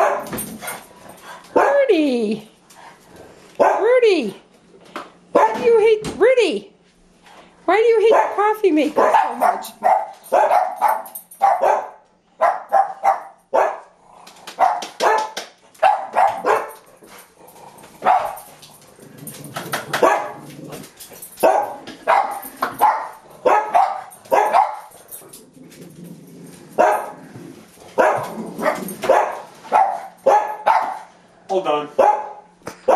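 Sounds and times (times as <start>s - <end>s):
dog barking: 0.0s - 0.3s, 3.6s - 3.9s, 5.3s - 5.6s, 8.1s - 8.4s, 9.0s - 13.9s, 14.6s - 16.8s, 18.0s - 18.5s, 20.0s - 20.4s, 21.4s - 24.9s, 26.8s - 27.1s, 28.0s - 31.1s, 32.0s - 32.9s.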